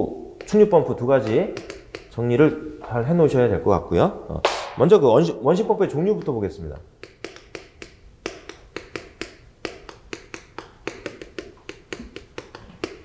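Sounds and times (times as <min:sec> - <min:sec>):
chalk tapping on chalkboard: 0:00.4 - 0:02.4, 0:06.0 - 0:13.0.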